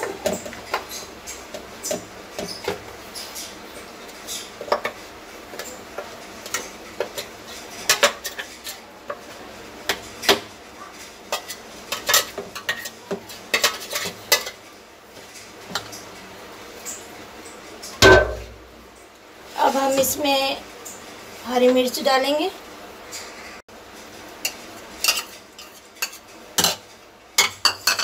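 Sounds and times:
sharp metal knocks: 18.0s - 18.7s.

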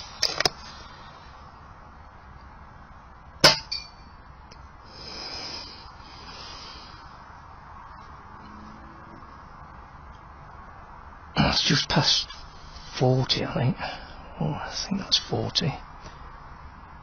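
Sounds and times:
metallic clang with ring: 3.4s - 4.2s.

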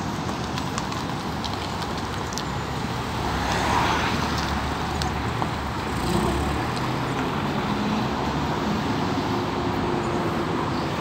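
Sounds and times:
traffic noise: 0.0s - 11.0s
car passing close by: 3.2s - 4.9s, 5.8s - 10.1s.

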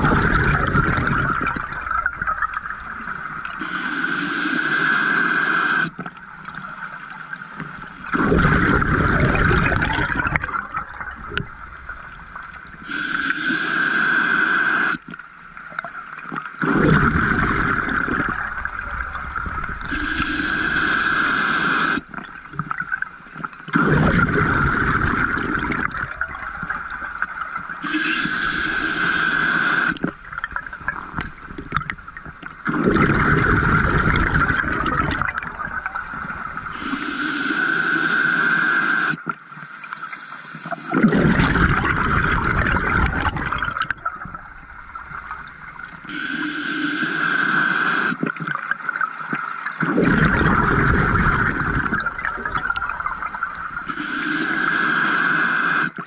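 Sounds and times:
exhaled bubbles rushing: 0.0s - 3.6s, 8.0s - 12.9s, 16.5s - 23.1s, 23.7s - 37.0s, 40.7s - 46.1s, 49.8s - 54.2s
regulator hissing inhale: 3.6s - 5.9s, 12.8s - 15.0s, 19.9s - 22.1s, 27.8s - 31.2s, 36.7s - 41.1s, 46.1s - 48.2s, 53.8s - 56.0s.

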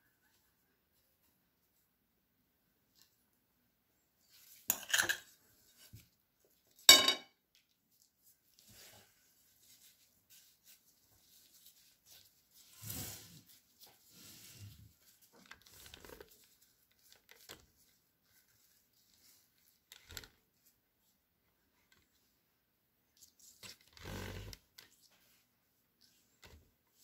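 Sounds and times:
plastic gloves rustling: 7.6s - 21.3s.

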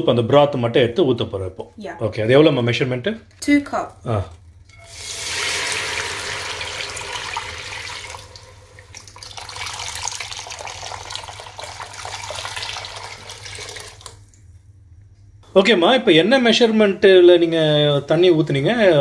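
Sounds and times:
broth pouring into a pot: 4.7s - 14.4s.

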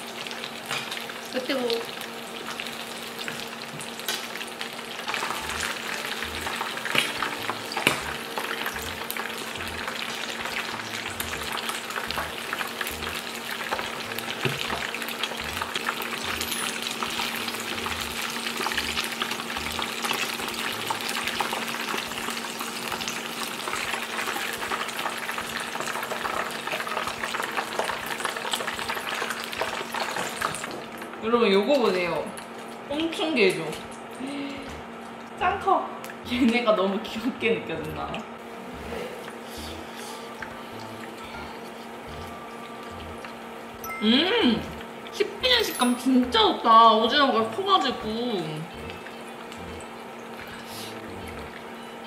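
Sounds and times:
oil crackling and sizzling: 0.0s - 35.5s, 38.2s - 52.0s.

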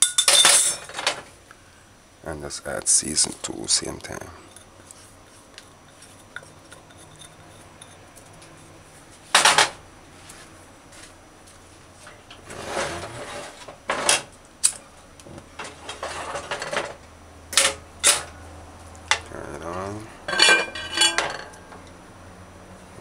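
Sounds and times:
metal spoon clinking on pot: 0.0s - 0.9s, 20.3s - 21.7s
ringing clatters: 0.0s - 1.2s, 20.3s - 21.9s
spoon scraping pot: 4.4s - 8.7s.

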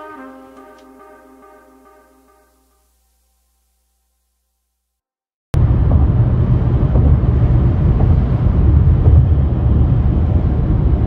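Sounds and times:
car road and wind noise: 5.6s - 11.0s.

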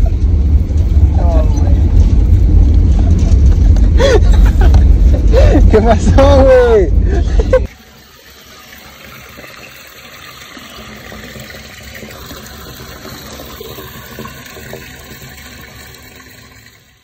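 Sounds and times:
water gushing into drain: 7.7s - 17.0s.

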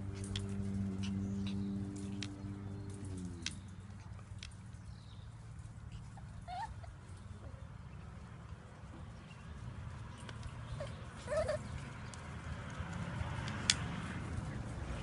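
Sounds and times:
puppy paws clicking: 0.0s - 15.0s
puppy squeak: 6.5s - 6.9s, 10.8s - 11.7s.

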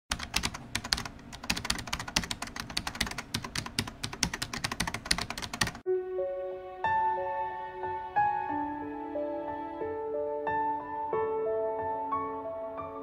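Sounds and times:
keyboard typing: 0.1s - 5.8s
soft music: 5.7s - 13.0s.

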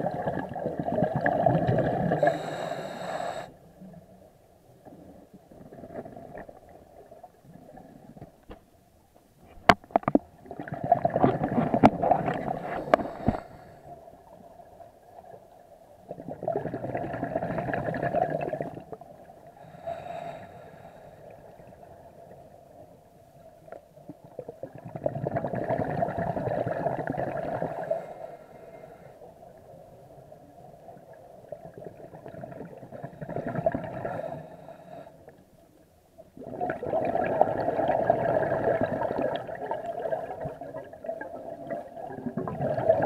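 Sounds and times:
bubbles gurgling underwater: 0.0s - 2.4s, 9.9s - 13.4s, 16.0s - 19.1s, 24.1s - 27.8s, 30.9s - 34.3s, 36.4s - 43.0s.

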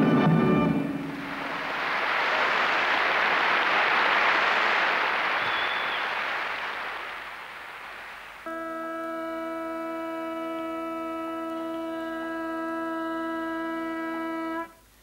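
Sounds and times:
audience applauding: 0.8s - 11.7s
bagpipe drones: 8.4s - 14.8s.

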